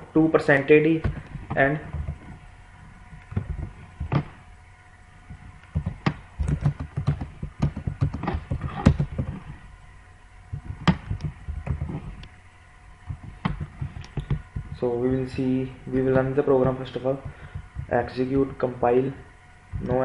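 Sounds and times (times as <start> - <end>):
keyboard typing: 5.7 - 9.4.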